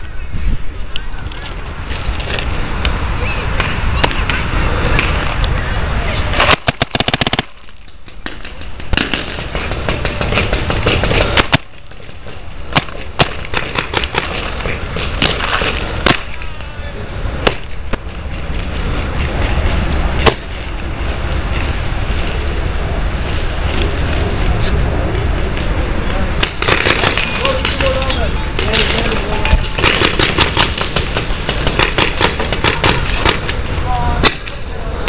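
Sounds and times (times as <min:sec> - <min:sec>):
steady rushing noise: 0:00.0 - 0:35.0
paintball markers firing: 0:06.4 - 0:16.5, 0:17.4 - 0:18.1, 0:26.4 - 0:33.6.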